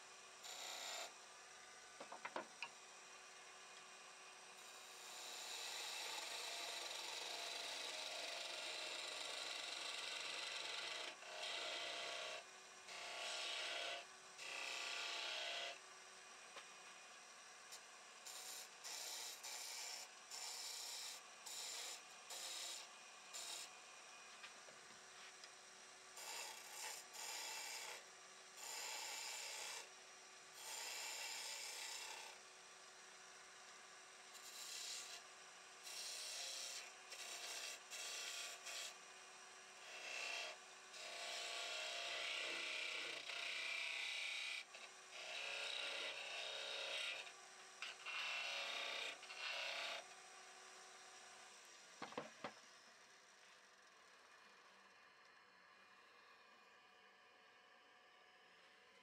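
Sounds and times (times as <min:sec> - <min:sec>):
lathe hum: 0:04.6 - 0:15.7, 0:18.2 - 0:27.9, 0:35.9 - 0:38.9
turning tool shaving spinning wood: 0:04.7 - 0:15.6, 0:26.2 - 0:28.0, 0:35.9 - 0:38.9, 0:40.0 - 0:47.2.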